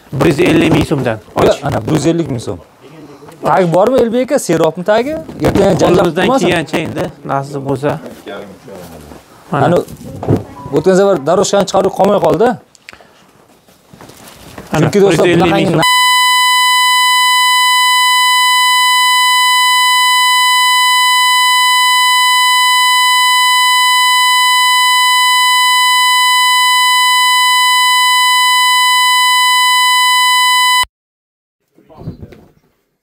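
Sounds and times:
continuous electronic beep tone: 0:15.8 - 0:30.9.

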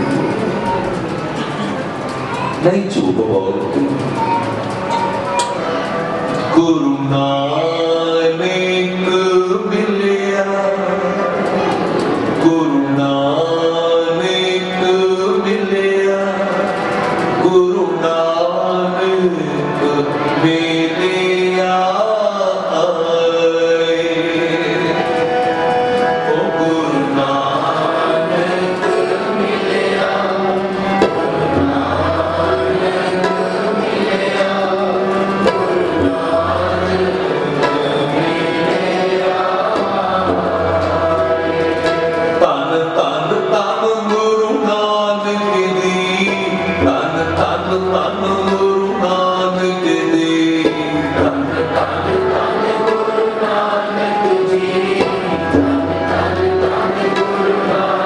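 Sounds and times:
harmonium chords: 0:00.0 - 0:58.0
tabla drumming: 0:00.0 - 0:58.0
men singing: 0:06.4 - 0:58.0.

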